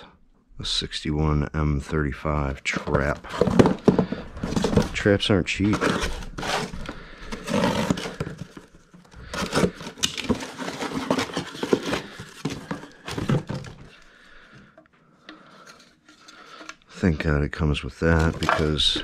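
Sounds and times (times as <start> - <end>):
cardboard ripping and scraping: 2.9 - 13.8.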